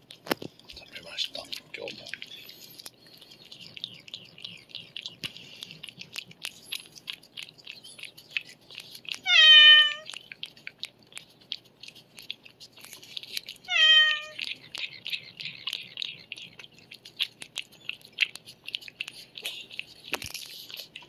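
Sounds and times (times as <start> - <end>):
cat licking wet paste: 0.0 - 21.0
cat meowing: 9.2 - 10.1, 13.7 - 14.5.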